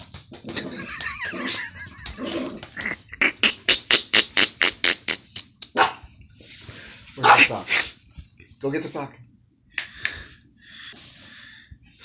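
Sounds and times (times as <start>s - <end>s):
dog growling: 0.4s - 3.1s.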